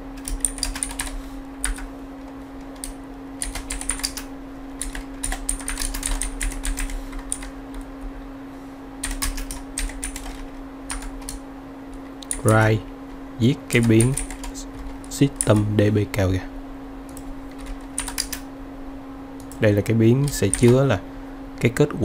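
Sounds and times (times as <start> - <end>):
steady low hum: 0.0 - 22.0
typing on computer keyboard: 0.2 - 1.9, 2.7 - 7.5, 9.0 - 11.4, 13.7 - 15.7, 17.1 - 18.4, 20.2 - 20.8.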